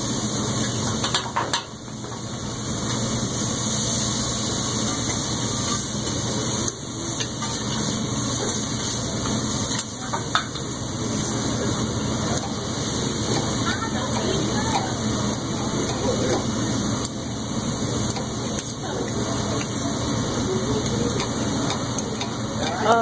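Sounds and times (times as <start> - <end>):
food sizzling on griddle: 0.0 - 23.0.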